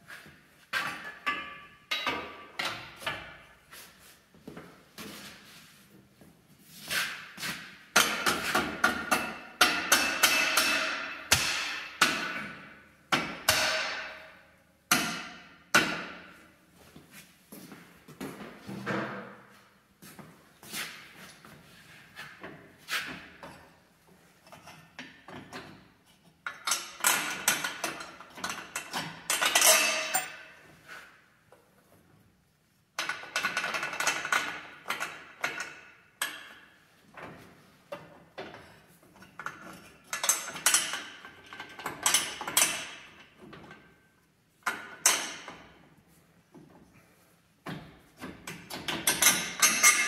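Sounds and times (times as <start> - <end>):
metal hardware clinking: 26.5 - 30.6, 48.8 - 50.0.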